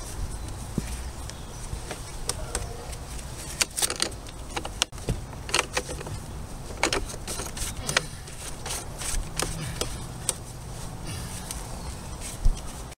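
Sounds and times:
plastic pipe scraping and clicking: 1.3s - 10.5s.

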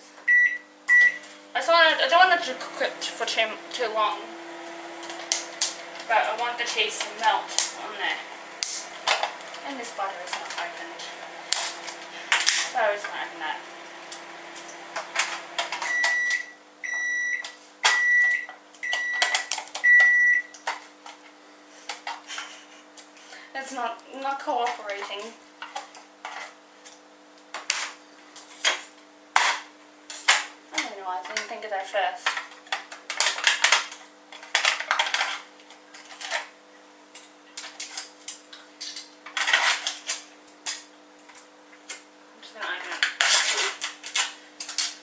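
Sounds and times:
microwave running hum: 0.0s - 45.0s
microwave oven beeping: 0.1s - 20.6s.

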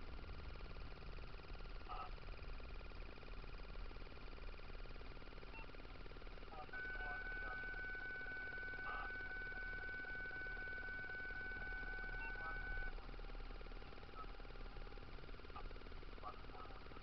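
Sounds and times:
low hum: 0.0s - 17.0s
high electronic tone: 6.6s - 13.0s.

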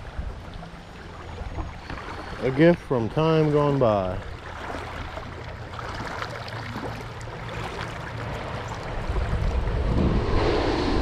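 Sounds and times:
shallow creek water: 0.0s - 10.0s
low rumble: 8.2s - 11.0s
wind on microphone: 8.5s - 11.0s.

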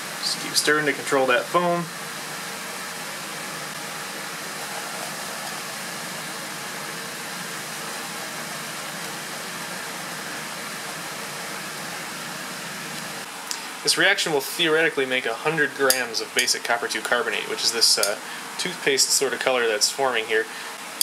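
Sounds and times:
fizzing hiss of bubbling liquid: 0.1s - 14.0s.

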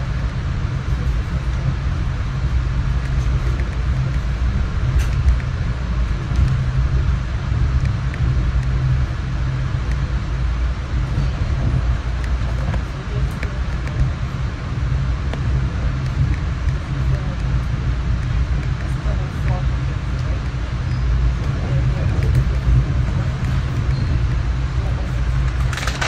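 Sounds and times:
train car rumble: 0.0s - 26.0s.

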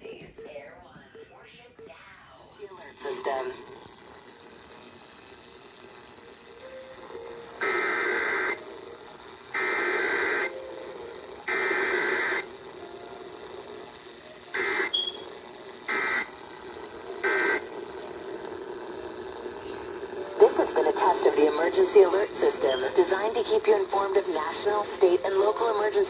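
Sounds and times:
radio hiss: 2.6s - 8.8s, 9.5s - 12.8s, 13.6s - 26.0s
harsh buzzing data bursts: 2.6s - 26.0s.

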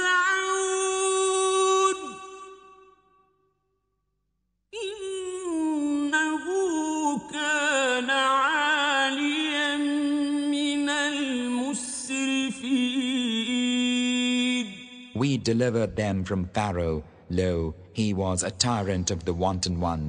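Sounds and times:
man chanting recitation: 5.6s - 20.0s.

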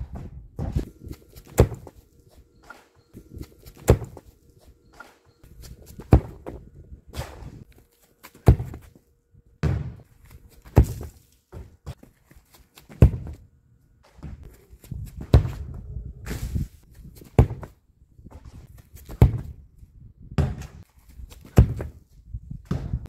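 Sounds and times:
football being kicked: 0.1s - 2.0s, 3.6s - 4.2s, 5.8s - 6.6s, 8.4s - 8.9s, 9.6s - 10.1s, 10.7s - 11.7s, 13.0s - 13.4s, 17.4s - 17.7s, 19.1s - 19.6s, 20.4s - 20.8s, 21.5s - 22.0s, 22.6s - 23.0s.

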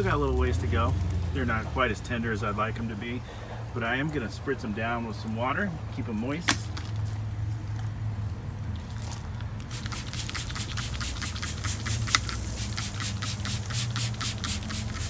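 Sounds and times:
spray bottle spritzing: 9.6s - 15.0s.

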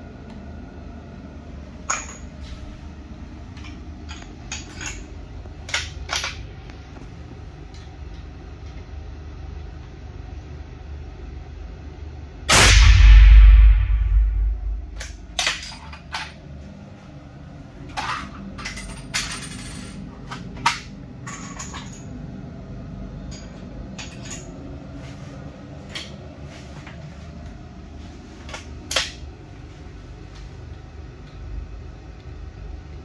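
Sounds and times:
gunshot echo: 12.5s - 15.0s.

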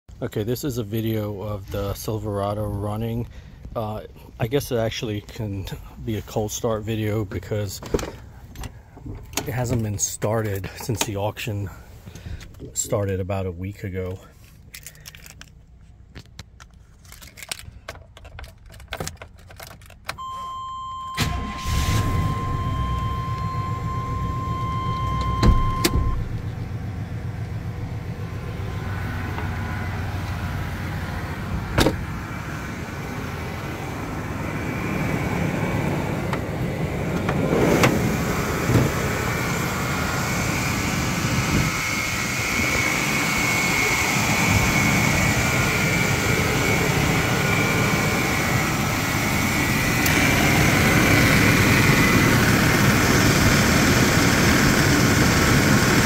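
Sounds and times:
engine starting and idling: 20.2s - 30.6s
steady whine: 20.2s - 56.0s
steady chime tone: 21.9s - 25.2s.

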